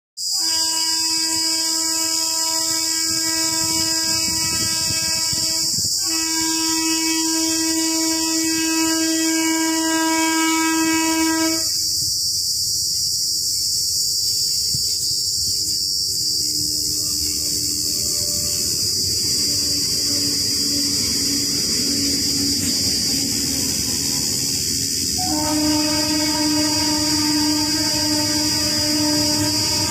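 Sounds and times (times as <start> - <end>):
train horn blasts: 0.2 - 11.8, 15.6 - 29.9
high hiss: 0.2 - 29.9
train rumbling: 0.2 - 29.9.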